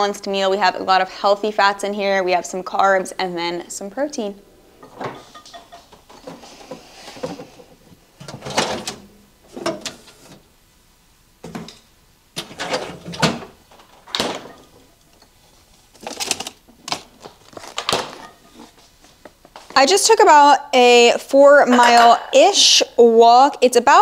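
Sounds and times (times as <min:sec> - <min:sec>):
containers knocking and clattering: 0:04.8 - 0:07.6.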